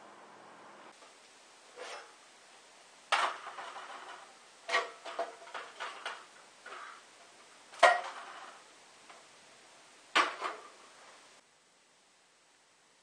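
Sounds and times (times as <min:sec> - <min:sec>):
sheet metal clanking and scraping: 0:03.1 - 0:07.0.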